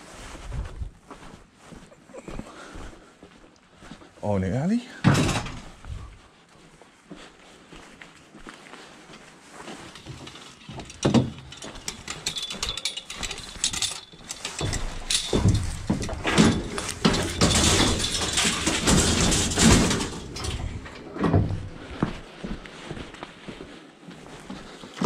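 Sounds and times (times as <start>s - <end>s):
scrap metal clanking: 9.8s - 21.8s.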